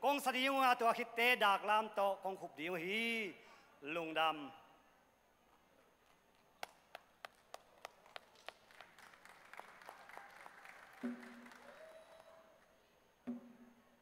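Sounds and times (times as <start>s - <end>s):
audience applause: 7.5s - 12.6s.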